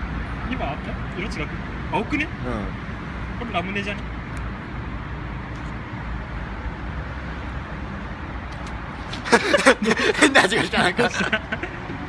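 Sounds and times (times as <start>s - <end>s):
man's voice: 9.6s - 11.4s.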